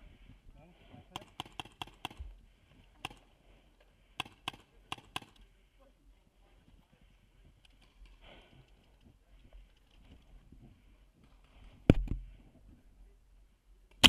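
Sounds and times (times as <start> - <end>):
paintball markers firing: 1.2 - 2.3, 4.2 - 5.4.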